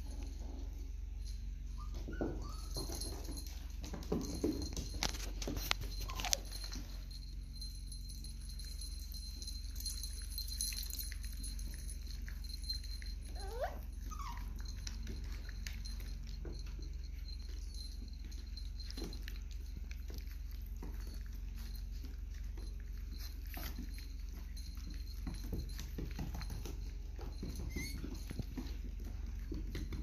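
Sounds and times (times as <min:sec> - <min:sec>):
low steady hum: 0:00.0 - 0:30.0
puppies whimpering: 0:01.6 - 0:03.2, 0:05.7 - 0:06.8, 0:12.7 - 0:24.6, 0:25.4 - 0:30.0.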